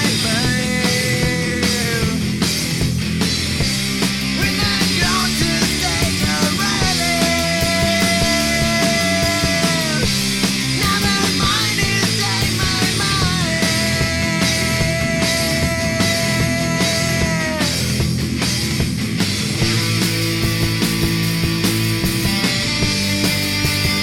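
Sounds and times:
rock music: 0.0s - 24.0s.

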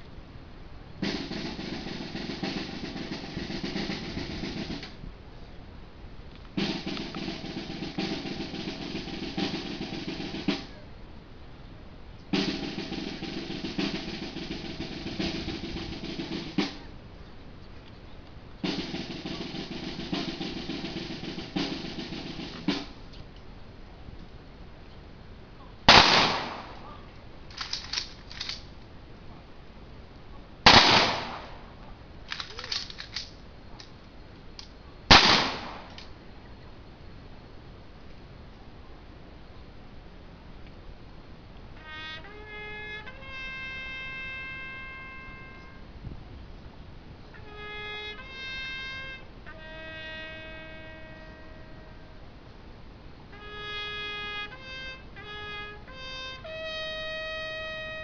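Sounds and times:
rifle volley: 1.0s - 5.0s, 12.4s - 17.0s, 18.6s - 23.0s, 25.9s - 28.7s, 30.6s - 33.9s, 35.1s - 36.1s, 47.4s - 51.8s
snare drum rolls: 1.0s - 5.0s, 6.6s - 10.8s, 12.3s - 16.9s, 18.6s - 23.1s, 25.9s - 26.9s, 30.7s - 31.8s, 35.1s - 36.1s, 41.8s - 45.8s, 47.4s - 52.0s, 53.3s - 58.0s
quick clicks: 27.5s - 28.7s, 32.3s - 34.0s.

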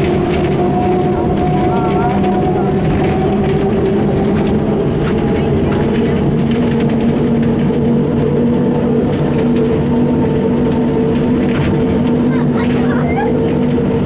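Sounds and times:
bus diesel engine droning: 0.0s - 14.0s.

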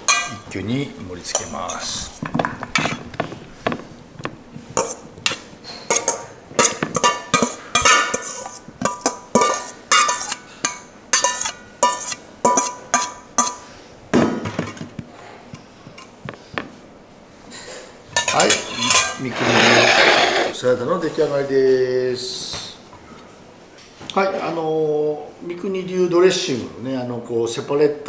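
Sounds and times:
spoon clinking in metal bowl: 0.1s - 0.4s.

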